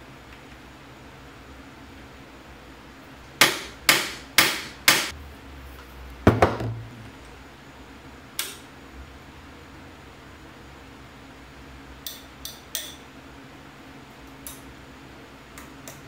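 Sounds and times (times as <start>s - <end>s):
hammer striking metal bit: 3.4s - 5.1s.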